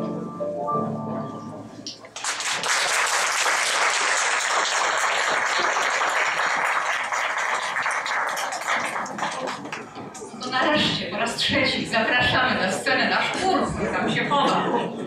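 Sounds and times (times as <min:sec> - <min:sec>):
audience applauding: 0:02.1 - 0:10.4.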